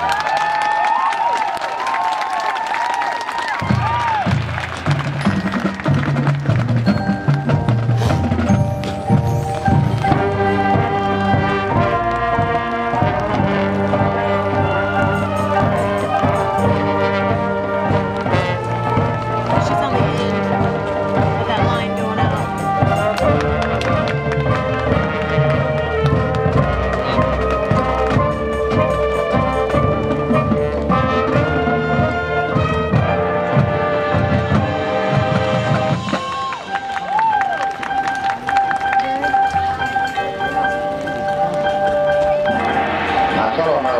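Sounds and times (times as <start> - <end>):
marching percussion strikes: 3.6 - 37.2, 37.9 - 43.9
brass section holding chords: 9.4 - 36.2, 38.0 - 43.9.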